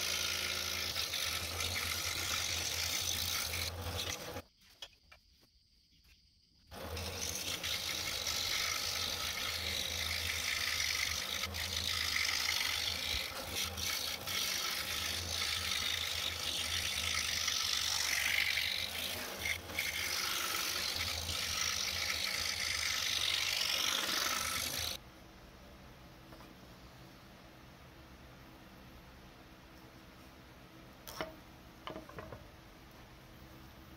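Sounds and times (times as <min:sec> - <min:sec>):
scroll saw cutting wood: 0:00.0 - 0:04.4, 0:06.7 - 0:25.0.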